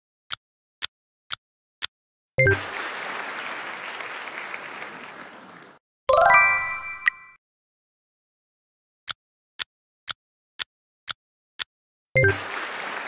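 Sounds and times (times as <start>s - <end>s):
applause: 2.4s - 5.8s, 12.2s - 13.0s.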